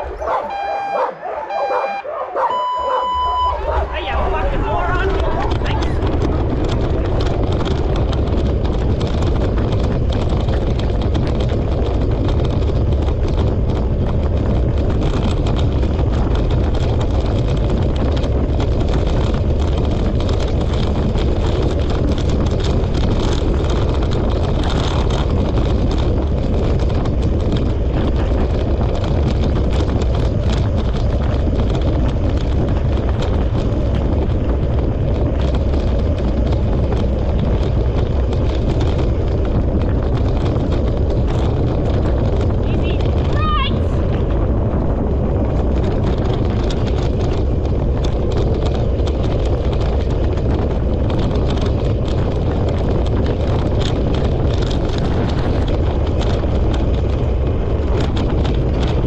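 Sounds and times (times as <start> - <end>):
sled wheels rolling on trail: 0.0 - 59.0
wind buffeting microphone: 0.0 - 59.0.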